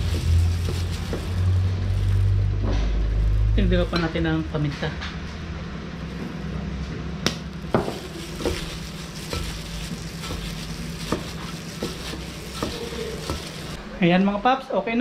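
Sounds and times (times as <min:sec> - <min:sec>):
food sizzling: 0:00.0 - 0:03.4, 0:07.6 - 0:13.8
utensil clinking on cookware: 0:07.8 - 0:13.8.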